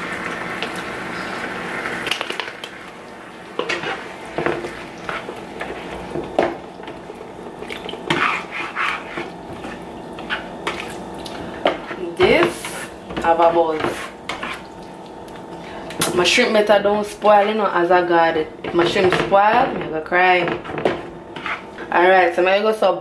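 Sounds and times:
spatula scraping frying pan: 3.6 - 7.1, 7.8 - 14.7, 15.7 - 17.9, 18.6 - 22.0.

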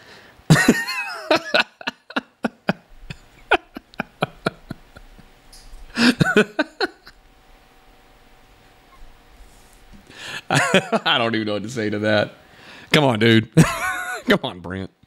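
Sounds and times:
man chuckling breathily: 0.5 - 7.2, 10.1 - 11.0.

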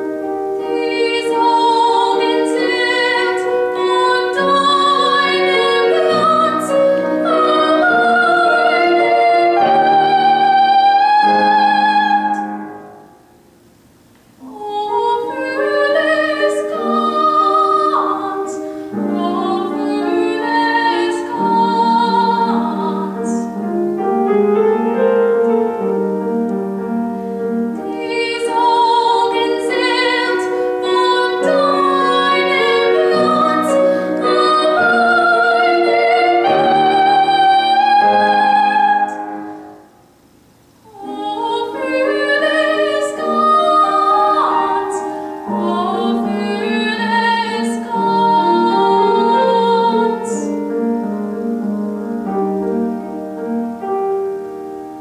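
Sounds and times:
piano chords: 0.0 - 55.0
woman singing operatically: 0.6 - 12.6, 14.4 - 23.5, 27.8 - 39.2, 40.9 - 50.6.

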